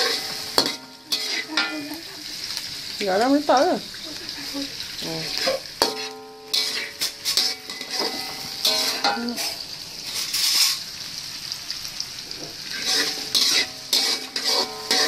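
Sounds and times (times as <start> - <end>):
spatula scraping and clinking pan: 0.0 - 2.0, 5.2 - 10.8, 12.3 - 15.0
food sizzling in hot oil: 0.0 - 15.0.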